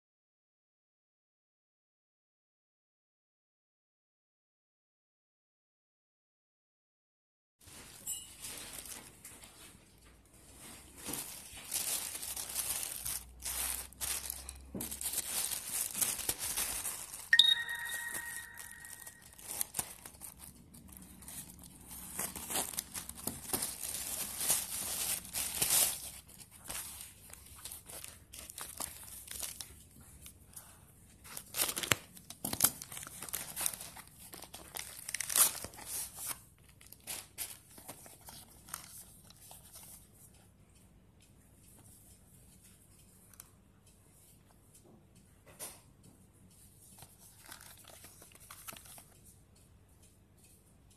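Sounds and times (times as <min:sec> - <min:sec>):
plastic bag crinkling and tearing: 0:08.4 - 0:09.6, 0:10.5 - 0:29.9, 0:31.2 - 0:39.1, 0:47.2 - 0:49.1
short pitched ding: 0:17.4 - 0:19.4.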